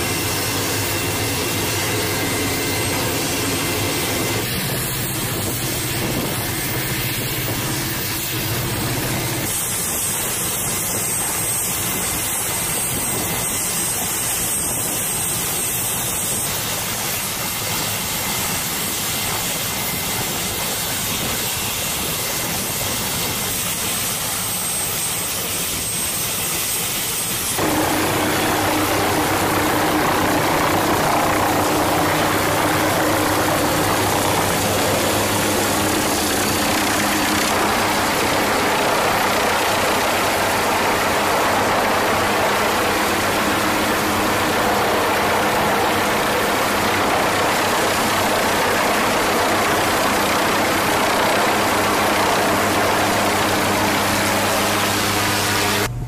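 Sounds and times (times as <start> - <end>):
helicopter engine and rotor: 0.0 - 56.0
thin high whine: 26.8 - 56.0
steady low hum: 27.6 - 56.0.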